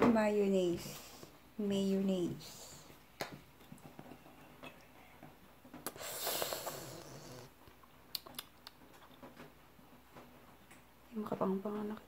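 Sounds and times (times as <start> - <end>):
sputtering squirt from bottle: 5.9 - 7.1.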